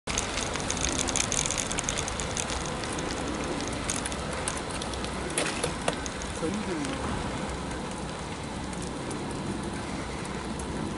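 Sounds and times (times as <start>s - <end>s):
bicycle tyres on rough asphalt: 0.0s - 10.9s
small clicks and rattles: 0.1s - 7.0s.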